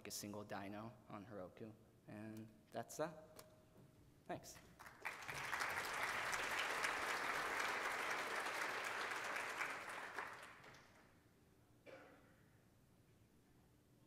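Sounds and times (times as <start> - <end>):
audience applauding: 4.8 - 11.1.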